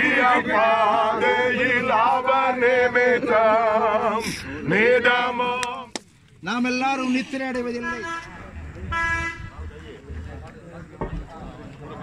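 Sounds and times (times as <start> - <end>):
man singing with vibrato: 0.0 - 5.9.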